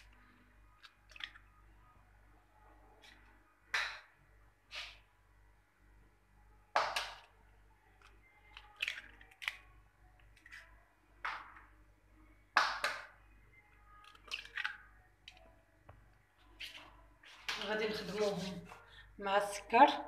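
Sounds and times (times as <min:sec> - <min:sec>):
eggs cracking on glass bowl: 0:00.8 - 0:01.5, 0:06.7 - 0:07.3, 0:08.0 - 0:09.7, 0:12.6 - 0:13.2, 0:14.0 - 0:15.4.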